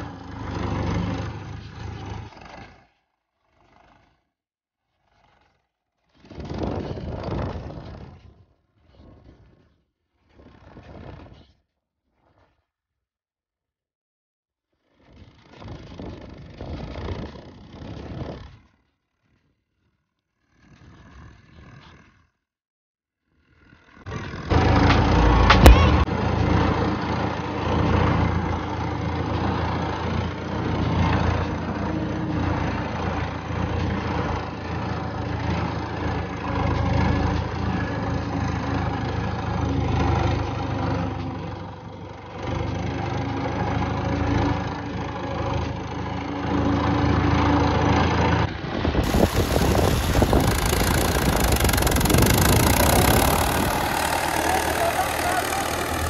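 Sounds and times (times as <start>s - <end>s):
tractor diesel engine running: 49.0s - 56.0s.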